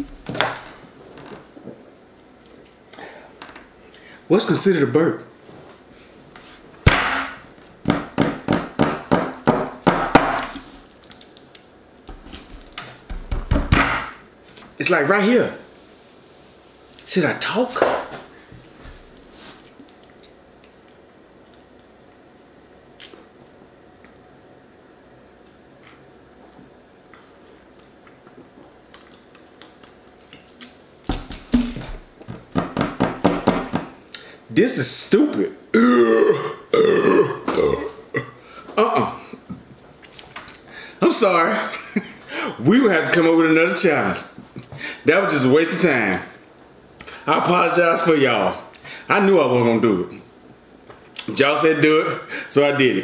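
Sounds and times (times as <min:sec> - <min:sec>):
loud low burp: 0:35.7 - 0:39.2
person gulping a drink: 0:35.8 - 0:39.2.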